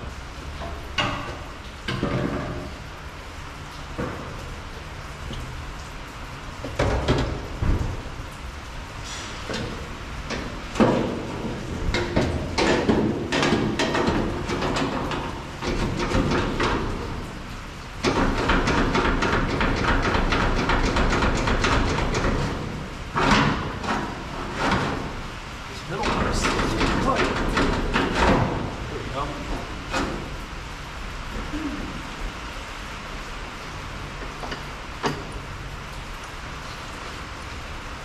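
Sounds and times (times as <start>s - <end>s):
metal knocks and clanks: 0.6s - 2.7s, 9.4s - 17.3s, 18.0s - 25.2s, 25.9s - 28.8s.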